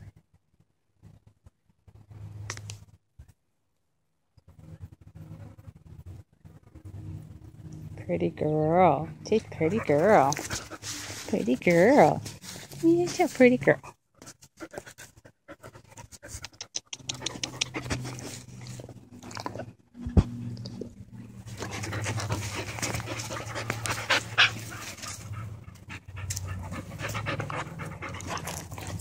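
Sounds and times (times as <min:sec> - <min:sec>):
puppy panting: 0:09.3 - 0:19.0, 0:21.4 - 0:29.0.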